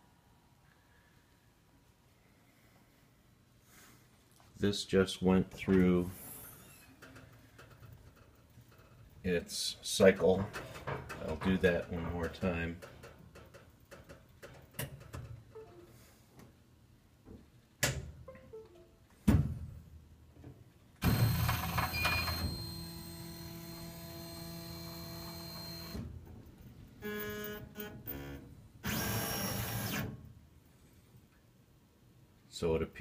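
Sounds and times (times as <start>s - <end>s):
stepper motor whine: 21.0s - 26.0s.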